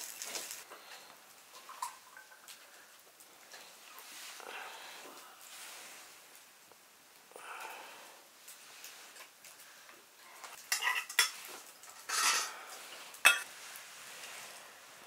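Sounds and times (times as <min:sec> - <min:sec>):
metal dishes clinking: 0:10.6 - 0:12.6, 0:13.2 - 0:13.5.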